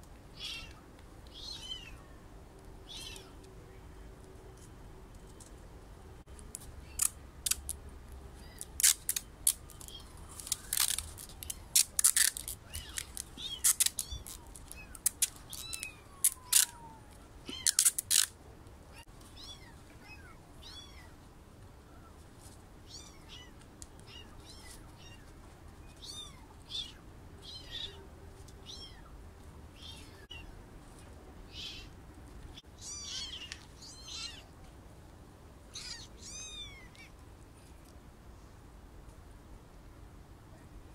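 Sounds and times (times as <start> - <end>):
kittens mewing: 32.8 - 34.5, 35.7 - 37.2.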